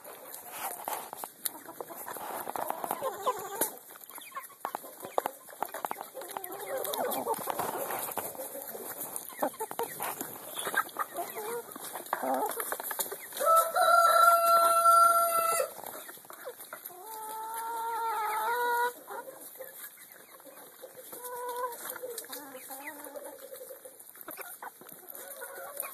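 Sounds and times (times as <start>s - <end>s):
hens clucking softly: 0.0s - 25.9s
hens pecking and scratching: 0.0s - 25.9s
rooster crowing: 13.4s - 15.7s.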